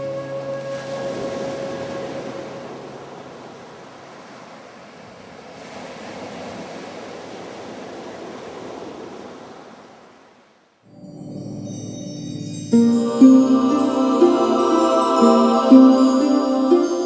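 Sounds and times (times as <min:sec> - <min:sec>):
sea waves washing: 0:00.0 - 0:07.0, 0:11.3 - 0:17.0.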